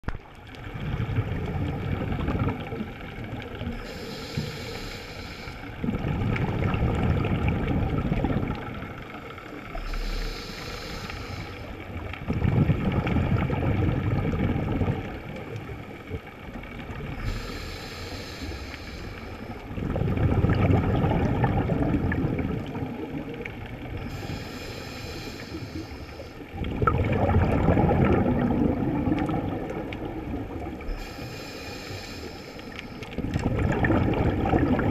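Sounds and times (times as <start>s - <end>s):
exhaled bubbles rumbling: 0.0s - 34.9s
regulator inhale hiss: 3.6s - 5.8s, 9.6s - 12.1s, 17.1s - 19.7s, 24.0s - 26.5s, 30.8s - 33.2s.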